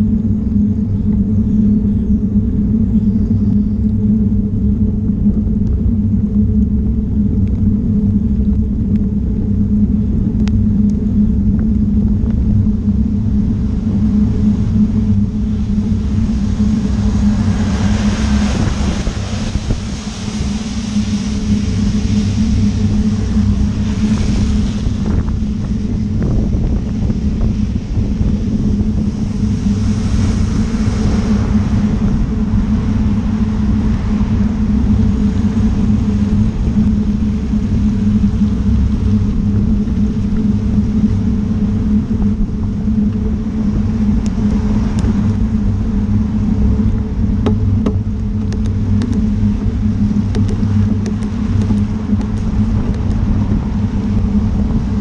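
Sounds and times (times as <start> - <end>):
wind and road rumble: 0.0 - 55.0
car tyres hissing on wet road: 15.5 - 36.8.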